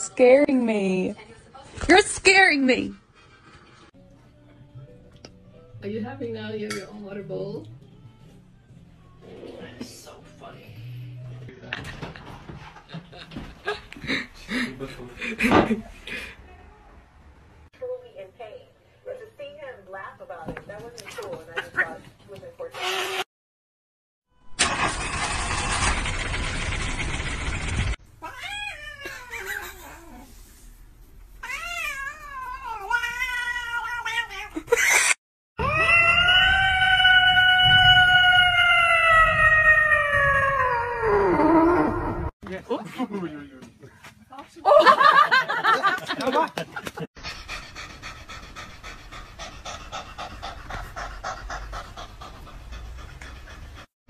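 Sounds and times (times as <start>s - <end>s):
cat meowing: 28.2s - 30.2s, 31.4s - 34.6s, 35.6s - 41.4s
cat panting: 47.2s - 54.0s.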